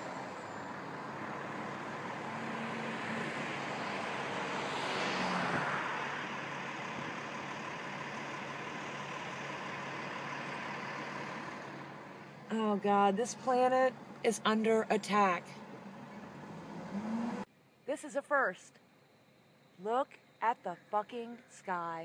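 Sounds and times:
vehicle passing: 0.0 - 17.5
road traffic hum: 0.0 - 17.6.

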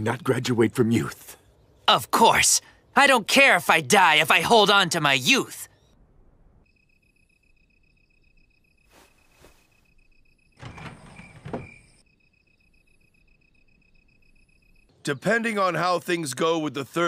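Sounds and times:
crickets chirping: 5.6 - 15.0
wooden door sliding: 10.6 - 12.0.

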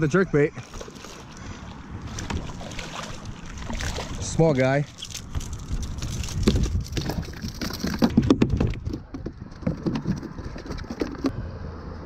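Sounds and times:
fish flopping on plastic deck: 2.1 - 4.3.

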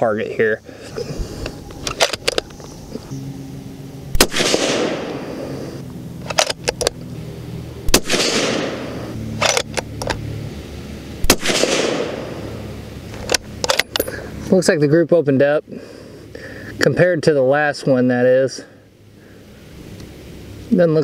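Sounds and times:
rifle bolt metallic clicks: 1.4 - 2.8, 6.2 - 7.0, 9.4 - 10.2, 13.1 - 14.1
suppressed rifle shots: 4.1 - 5.4, 7.9 - 10.2, 11.2 - 12.5.

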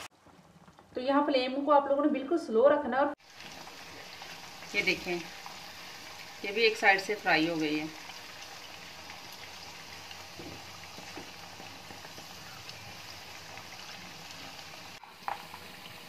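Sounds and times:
fish sizzling in a frying pan: 3.2 - 16.0.

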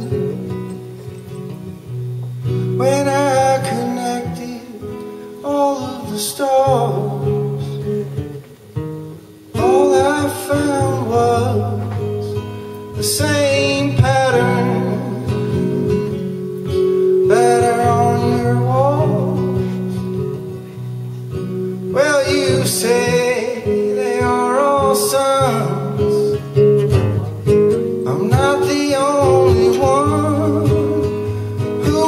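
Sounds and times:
acoustic guitar strumming: 0.0 - 32.0
man singing: 2.6 - 8.2, 9.5 - 16.4, 17.0 - 20.6, 21.8 - 26.7, 27.9 - 32.0.

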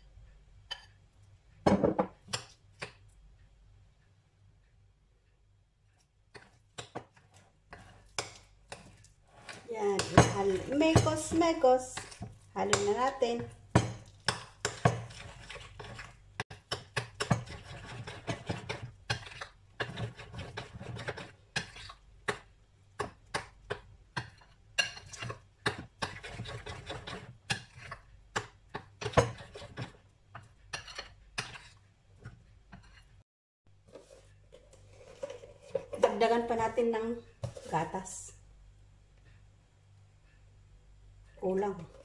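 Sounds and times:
spoon scraping batter: 5.8 - 33.2, 33.8 - 36.6.

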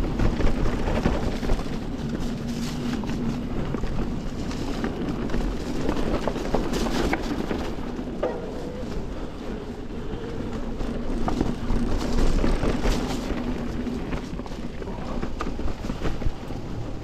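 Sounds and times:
tyres rolling over dirt: 0.0 - 17.0.

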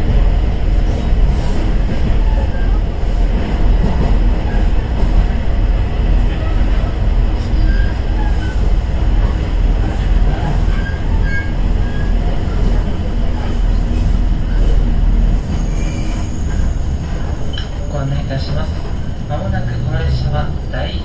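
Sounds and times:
train engine low rumble: 0.0 - 21.0
wheels squealing: 10.4 - 12.9, 15.4 - 18.2.

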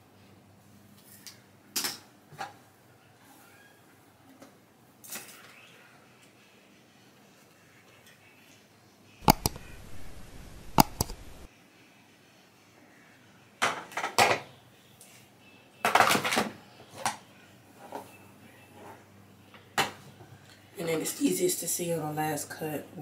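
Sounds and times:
scissors snipping hair: 9.2 - 11.5.

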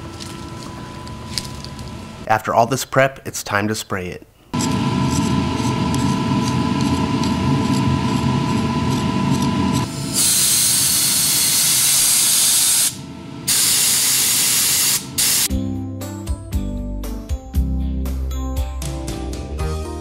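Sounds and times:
compressed air hissing from spray gun: 9.9 - 15.5
background music: 15.5 - 20.0.

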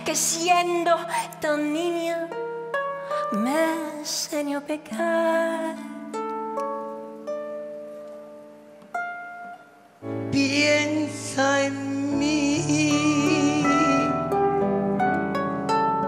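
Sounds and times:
harp plucked notes: 5.0 - 16.0.

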